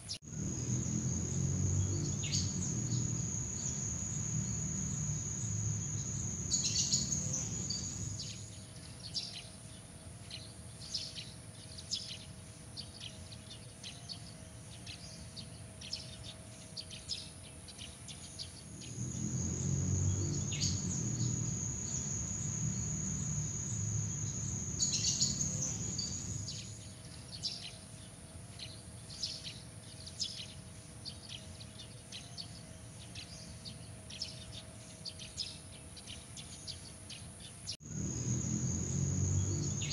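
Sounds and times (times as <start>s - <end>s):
cricket-like trill: 0.2s - 8.4s, 18.7s - 26.8s, 37.8s - 39.9s
short high insect chirps: 0.2s - 8.5s, 18.7s - 26.8s, 37.8s - 39.9s.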